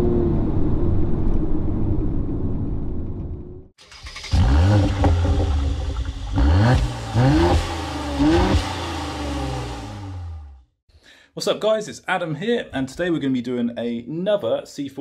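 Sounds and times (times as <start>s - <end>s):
car engine revving: 3.8s - 10.6s.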